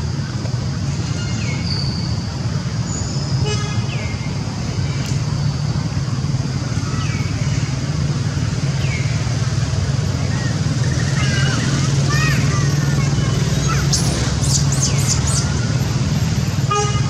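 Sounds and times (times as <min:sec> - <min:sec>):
engine humming: 0:00.0 - 0:17.0
high falling chirps: 0:13.4 - 0:15.8.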